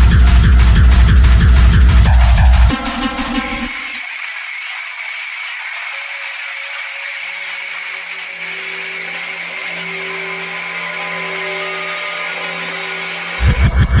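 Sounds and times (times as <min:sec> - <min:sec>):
kick drum and bass beat: 0:00.0 - 0:04.0, 0:13.4 - 0:14.0
droning synth tones: 0:00.0 - 0:04.4, 0:06.7 - 0:14.0.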